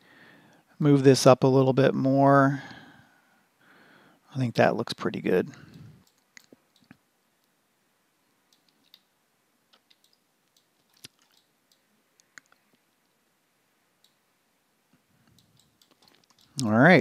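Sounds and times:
computer mouse clicks: 0:05.6 - 0:07.6, 0:08.5 - 0:09.1, 0:09.7 - 0:12.8, 0:14.0 - 0:14.2, 0:15.2 - 0:16.8.

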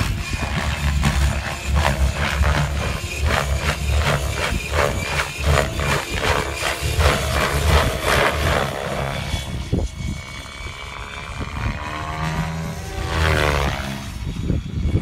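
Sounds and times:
helicopter rotor blades chopping: 0:00.0 - 0:15.0
motor and rotor whine: 0:00.0 - 0:15.0.

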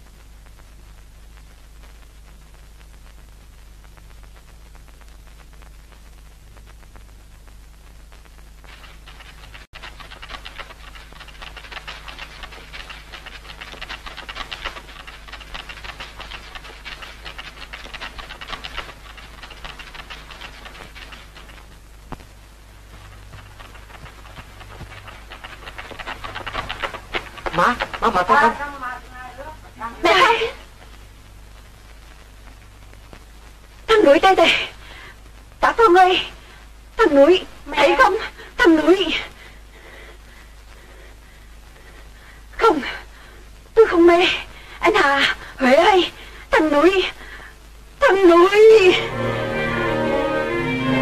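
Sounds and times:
film soundtrack hiss and hum: 0:00.0 - 0:51.0
rustling through undergrowth: 0:08.7 - 0:30.3.

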